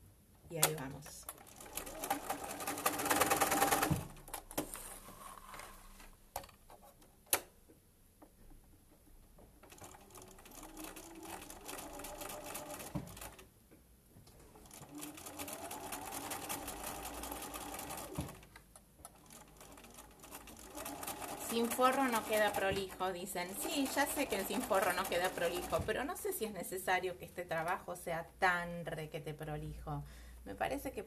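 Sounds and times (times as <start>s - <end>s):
sewing machine stitching: 1.3s - 4.8s, 9.6s - 13.4s, 14.6s - 18.5s, 19.1s - 26.0s.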